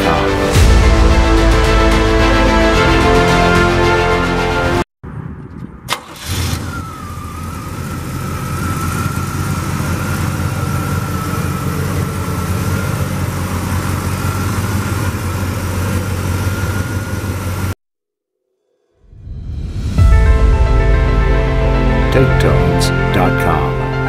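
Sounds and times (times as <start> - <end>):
car engine starting and idling: 5.6 - 17.8
thin steady whine: 7.6 - 17.7.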